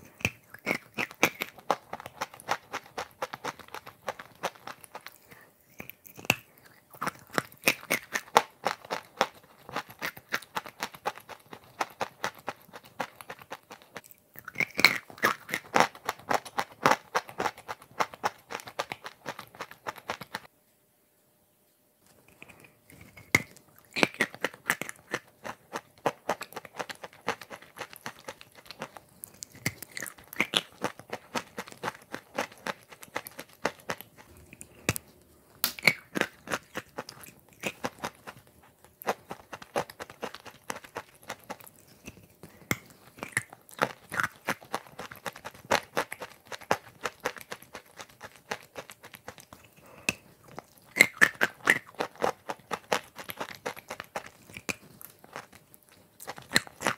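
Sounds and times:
chewing crunchy chalk: 0.0s - 20.5s, 22.1s - 56.9s.

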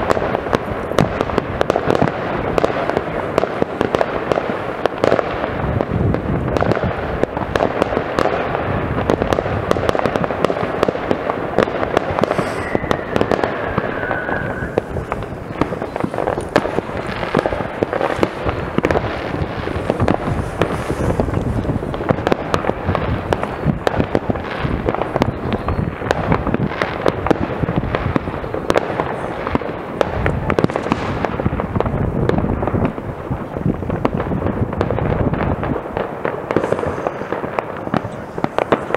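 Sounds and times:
fireworks bangs and crackles: 0.0s - 38.9s
falling firework whistle: 11.9s - 16.5s.

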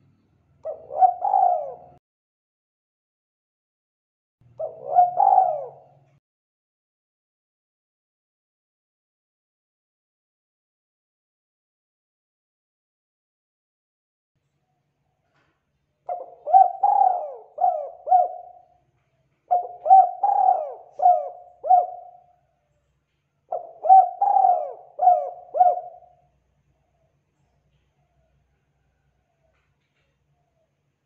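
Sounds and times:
dove cooing: 0.6s - 2.0s, 4.5s - 6.2s, 16.1s - 18.9s, 19.5s - 22.4s, 23.4s - 26.3s.

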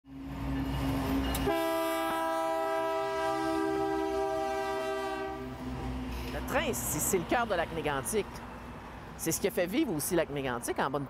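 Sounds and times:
diesel locomotive engine passing: 0.1s - 11.0s
train air horn: 1.4s - 5.6s.

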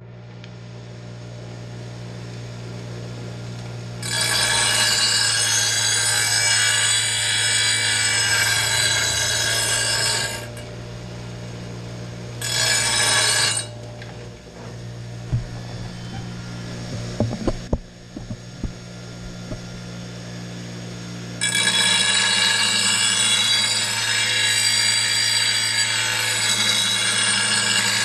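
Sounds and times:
steel blade grinding on wheel: 4.0s - 10.7s, 12.4s - 14.8s, 15.4s - 18.4s, 21.4s - 28.0s
bench grinder motor humming: 4.0s - 28.0s.

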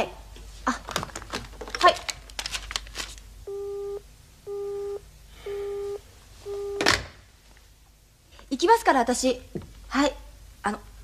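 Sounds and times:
telephone busy tone beeps: 3.5s - 6.9s.

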